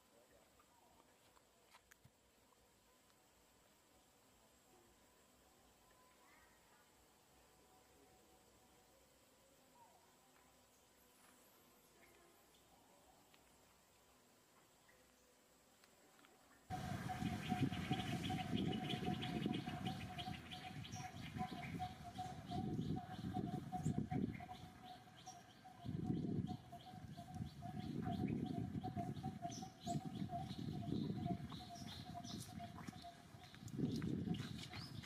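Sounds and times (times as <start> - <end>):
birds chirping: 16.7 - 35.0.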